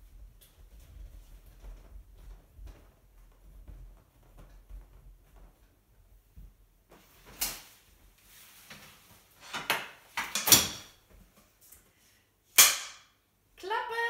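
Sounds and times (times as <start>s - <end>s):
umbrella rustling: 0.0s - 10.2s
clapperboard snapping shut: 9.5s - 10.9s.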